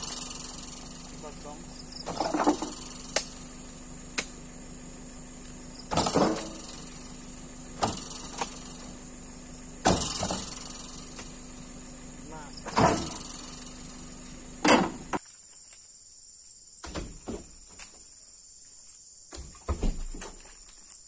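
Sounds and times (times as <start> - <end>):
steady low hum: 0.0 - 15.2
heavy thumps: 5.8 - 9.0, 9.8 - 11.4, 12.6 - 13.7.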